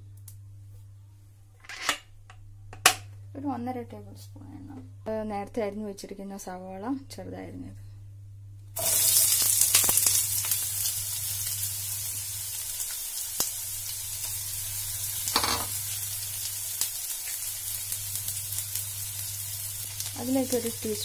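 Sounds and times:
onions sizzling in hot oil: 8.8 - 21.0.

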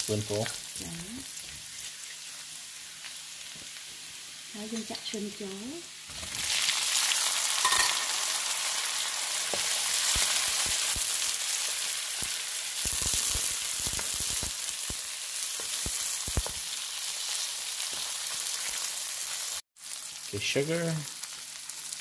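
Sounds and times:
shrimp sizzling in a wok: 0.0 - 22.0
spatula tapping and scraping wok: 7.6 - 8.2.

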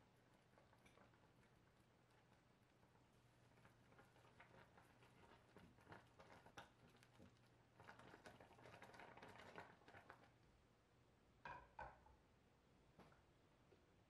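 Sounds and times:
fruit simmering in saucepan: 0.0 - 10.7.

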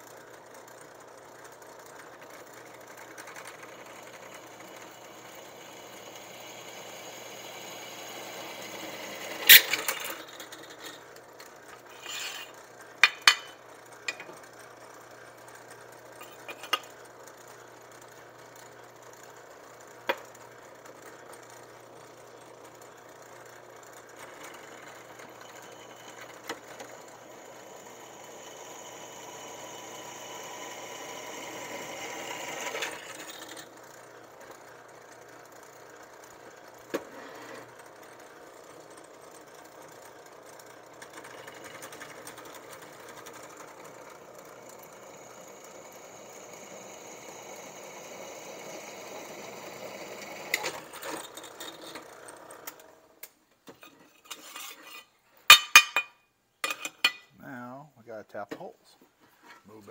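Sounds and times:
steady motor hum: 0.0 - 36.8
metal vise clanking: 11.9 - 14.3, 53.8 - 57.3.

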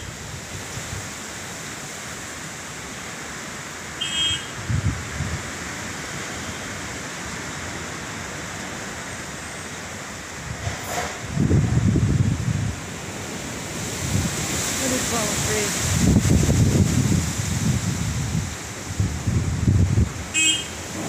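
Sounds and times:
wind rushing through trees: 0.0 - 21.0
wind gusts buffeting microphone: 4.6 - 6.2, 10.2 - 21.0.

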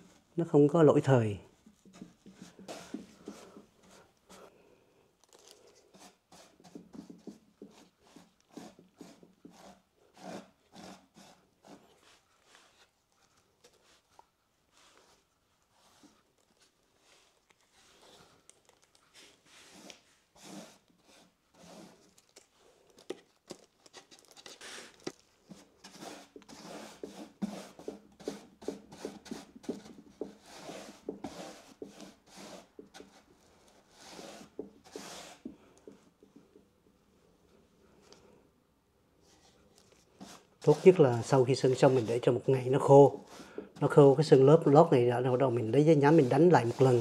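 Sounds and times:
paintbrush swishing on ridged wood: 1.6 - 4.1, 19.1 - 21.9, 25.5 - 35.5, 39.2 - 47.0.

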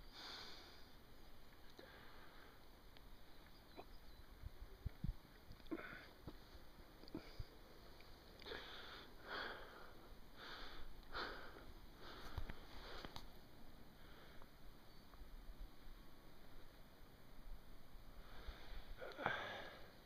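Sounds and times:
person breathing in and out: 1.8 - 2.7, 8.4 - 13.2, 18.1 - 20.0.

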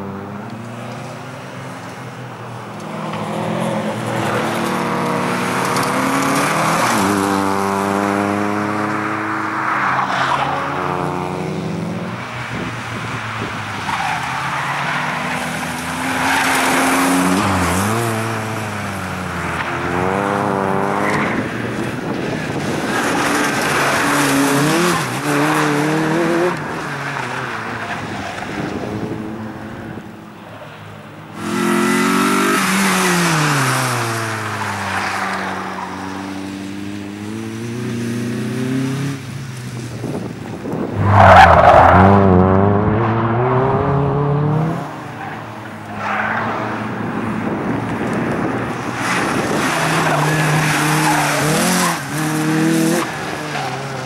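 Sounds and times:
tyres skidding: 0.5 - 54.0
car engine revving: 40.9 - 45.3.

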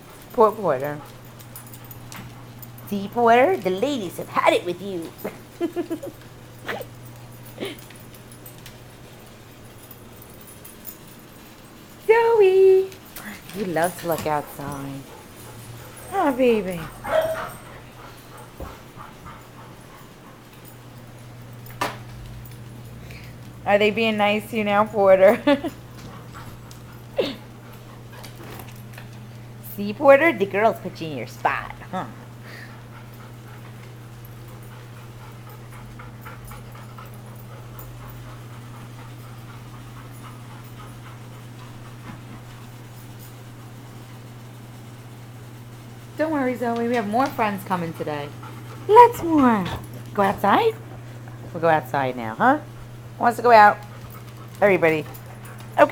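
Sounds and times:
steady low hum: 0.0 - 55.9
small dog barking: 17.0 - 17.6.

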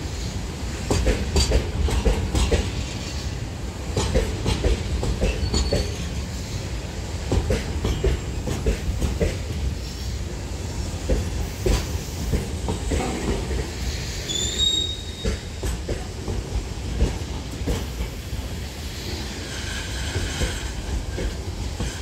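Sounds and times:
steel wheels rumbling on rail: 0.0 - 22.0
wheels clacking over rail joints: 0.8 - 3.1, 3.9 - 6.5, 7.2 - 9.7
high wheel squeal: 14.2 - 15.5.

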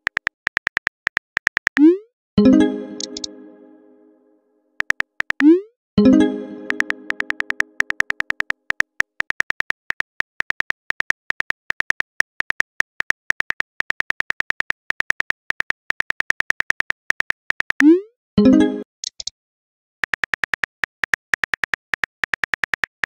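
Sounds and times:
chime-like tone: 2.4 - 4.4, 6.0 - 7.8, 18.4 - 18.9
phone keyboard typing clicks: 2.9 - 3.3, 6.6 - 17.8.

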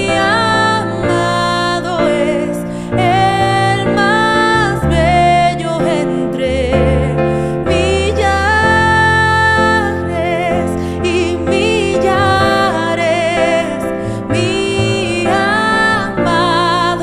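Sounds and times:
piano chords on keyboard: 0.0 - 17.0
woman singing: 0.0 - 17.0.

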